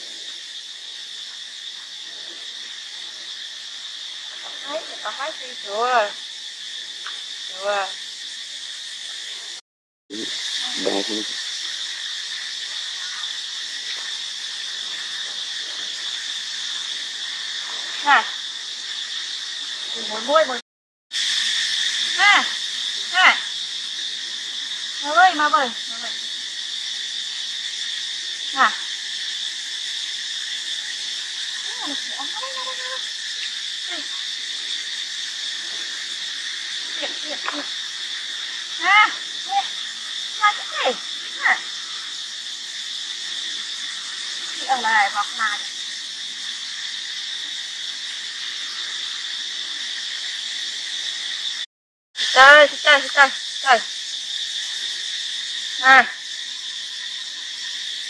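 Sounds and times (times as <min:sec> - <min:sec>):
insects droning: 0:00.0 - 0:58.0.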